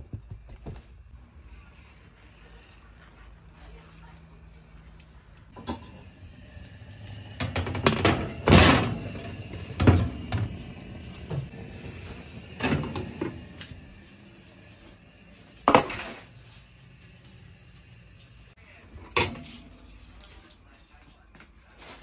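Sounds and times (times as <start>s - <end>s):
metal tray scraping on oven rack: 6.9s - 13.7s.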